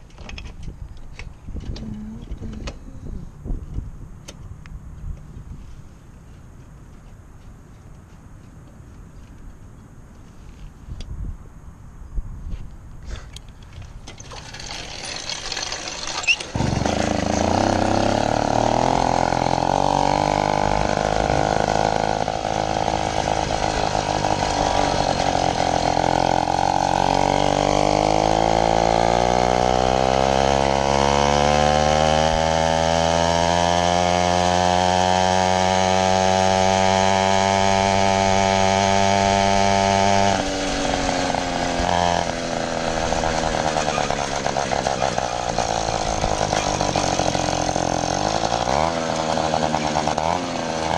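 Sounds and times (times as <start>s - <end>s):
two-stroke engine revving: 14.2s - 50.9s.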